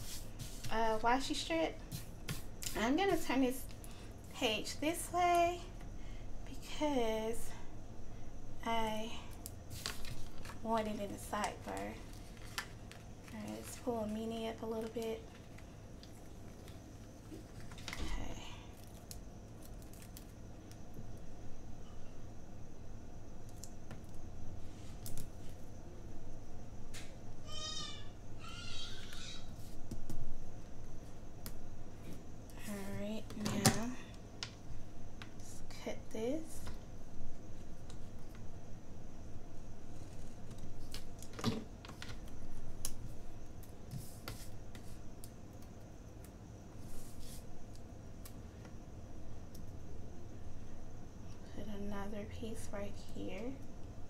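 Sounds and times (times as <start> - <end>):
paper rustling: 9.7 - 11.0
paper and tape rustling: 9.7 - 18.2
short high-pitched cries: 27.4 - 29.5.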